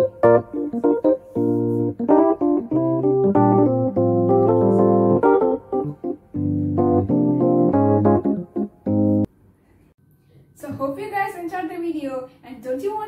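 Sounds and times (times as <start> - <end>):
keyboard instrumental music: 0.0 - 9.3.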